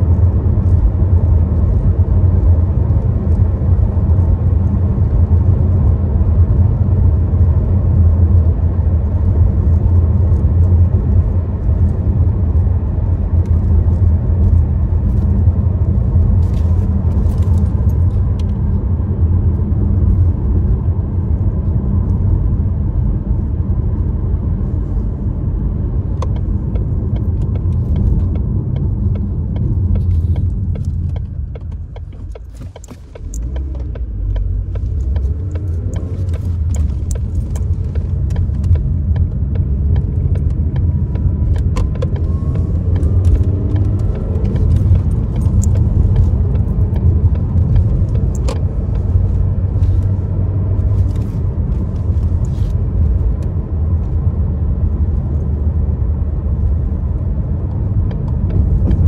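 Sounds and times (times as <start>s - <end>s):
car engine and road rumble: 0.0s - 59.0s
light clicks and rattles: 26.2s - 50.2s.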